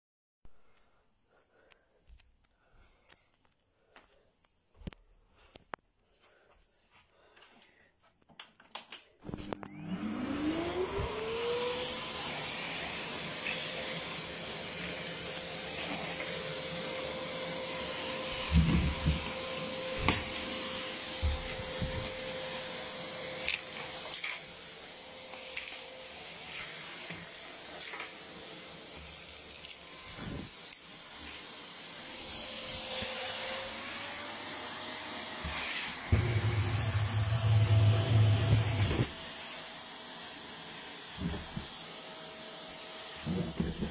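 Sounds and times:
vacuum cleaner motor whine: 0:09.2 - 0:43.9.

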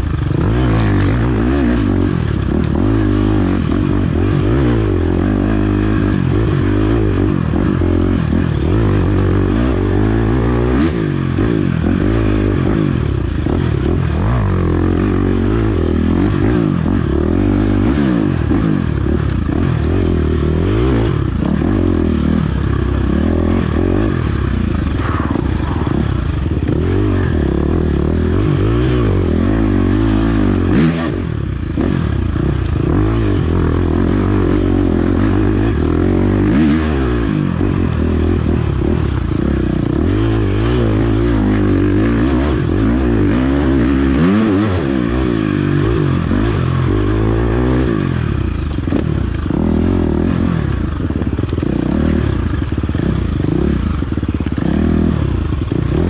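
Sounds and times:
dirt bike engine revving: 0:00.0 - 0:56.0
clatter and scraping: 0:47.8 - 0:53.3.

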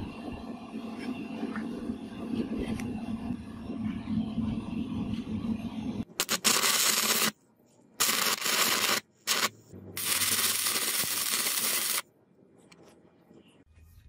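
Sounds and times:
welding arc hissing and crackling: 0:06.2 - 0:07.4, 0:08.0 - 0:12.1.

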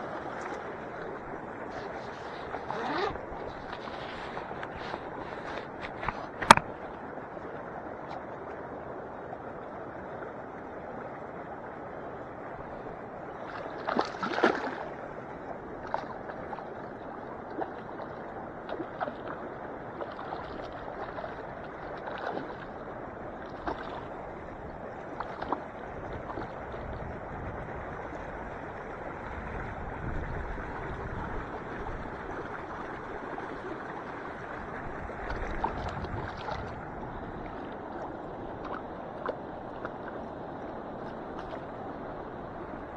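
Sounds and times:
water splashing: 0:00.0 - 0:06.8, 0:13.3 - 0:42.9
water lapping at shoreline: 0:00.0 - 0:42.9.

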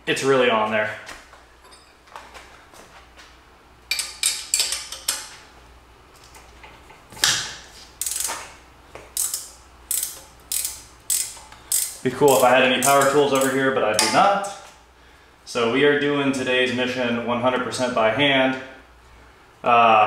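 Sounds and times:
ratchet wrench clicking: 0:03.9 - 0:05.3, 0:08.0 - 0:08.5, 0:09.2 - 0:14.1.

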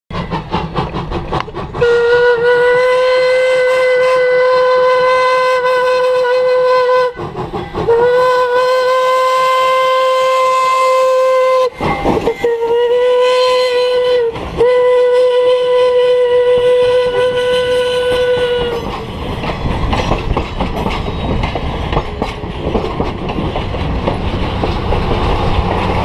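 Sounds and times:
steam locomotive exhaust chuffing: 0:00.1 - 0:26.0
steam whistle blasts: 0:01.8 - 0:18.9.

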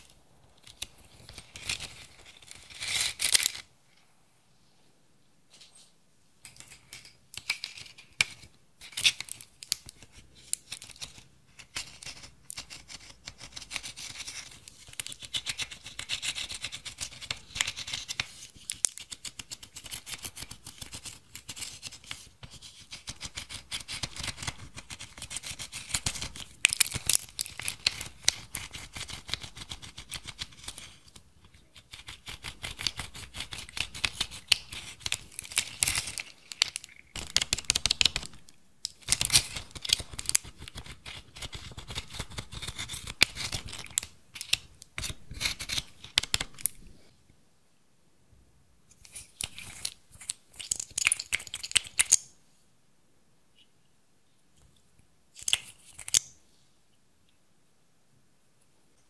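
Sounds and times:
powder eyeshadow being scratched: 0:07.4 - 0:31.1, 0:31.7 - 0:38.4, 0:39.0 - 0:46.6.

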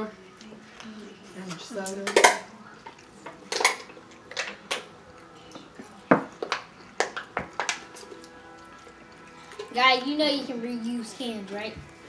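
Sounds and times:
tableware and cans clinking: 0:01.4 - 0:09.8.

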